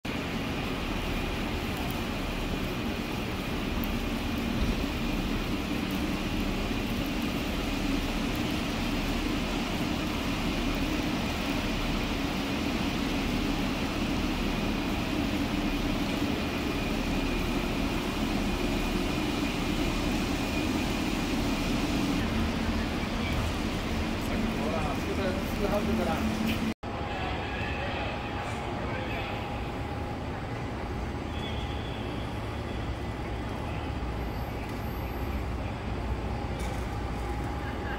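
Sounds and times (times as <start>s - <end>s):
vehicle running rumble and hiss: 0.1s - 26.8s, 28.4s - 37.9s.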